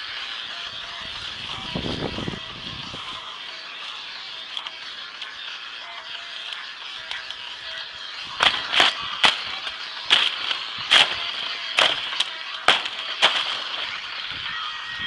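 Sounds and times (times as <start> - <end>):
machete swishing through undergrowth: 8.4 - 14.0.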